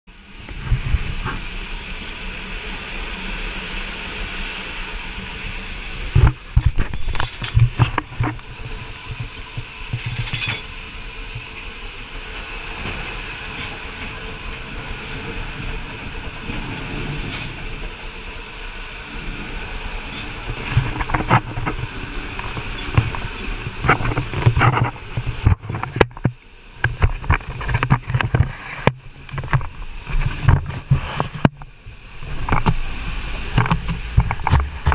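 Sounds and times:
steam hissing: 0.1s - 34.9s
metal clanks and knocks: 9.0s - 10.8s.

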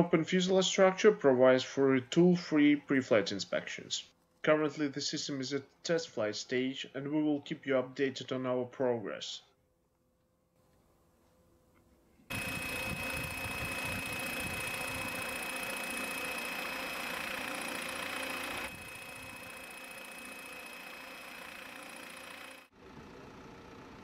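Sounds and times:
helicopter rotor high whine: 12.3s - 24.0s.

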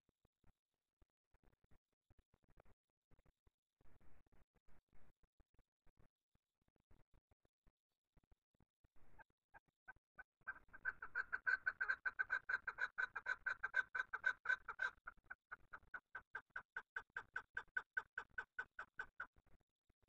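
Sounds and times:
partridge clucking call: 10.5s - 19.3s.

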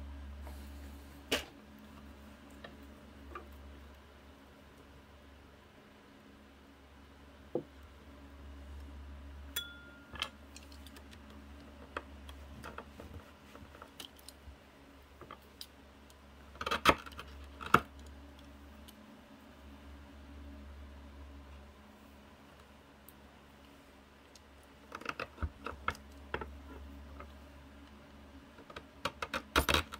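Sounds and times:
faint low hum: 0.0s - 29.9s
brief ringing tone: 9.6s - 10.2s.

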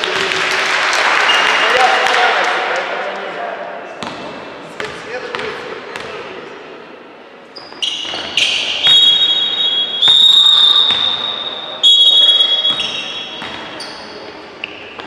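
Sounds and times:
basketball court noise: 0.0s - 2.7s, 3.8s - 6.4s, 7.5s - 15.0s
referee's whistle blasts: 7.8s - 14.0s.

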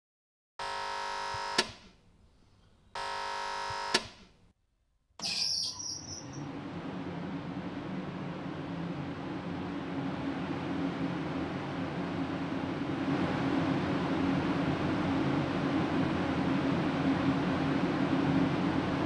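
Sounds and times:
warning buzzer: 0.6s - 1.8s, 3.0s - 4.2s
buzzer click: 0.6s - 1.9s, 3.0s - 4.3s
conveyor clatter and hum: 5.8s - 19.0s.

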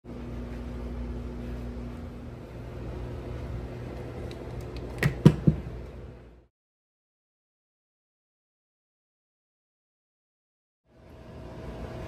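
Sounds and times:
appliance humming: 0.0s - 6.5s, 10.9s - 12.0s.

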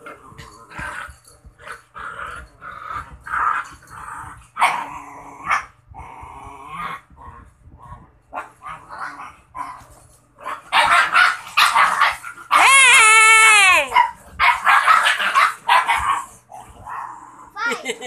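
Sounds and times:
puppies growling barks: 0.0s - 12.9s, 13.7s - 18.0s
puppy high whine: 12.5s - 14.7s.

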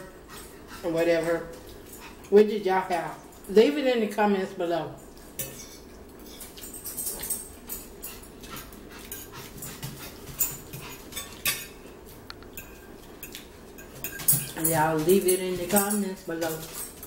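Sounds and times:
forks clicking against plates: 5.0s - 11.8s, 12.4s - 17.0s.

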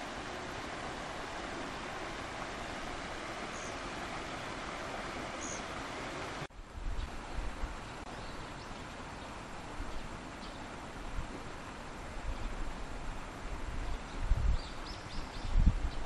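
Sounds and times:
stream running over rocks: 0.0s - 16.0s
wind thumping on microphone: 13.6s - 14.8s, 15.4s - 16.0s.

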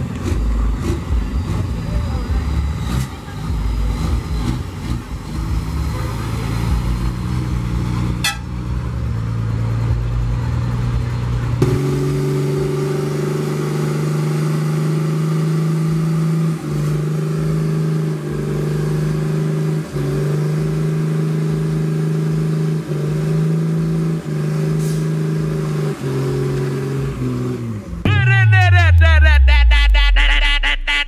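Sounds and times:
truck engine rumbling: 0.0s - 31.0s
engine revving high: 11.6s - 31.0s.

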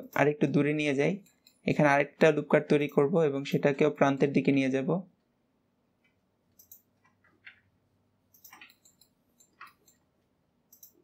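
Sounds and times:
mouse and keyboard clicks: 6.6s - 7.6s, 8.3s - 10.1s, 10.7s - 11.0s.

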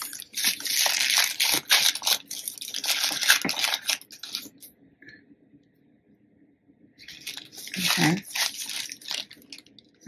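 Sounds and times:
plastic wrapping crinkling: 0.0s - 4.7s, 7.0s - 10.0s.

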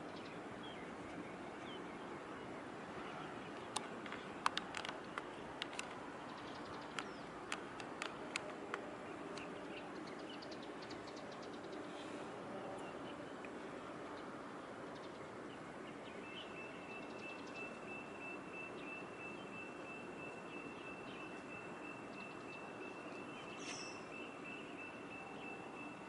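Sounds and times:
outdoor background hiss and hum: 0.0s - 26.0s
faint bird chirps: 15.5s - 26.0s.

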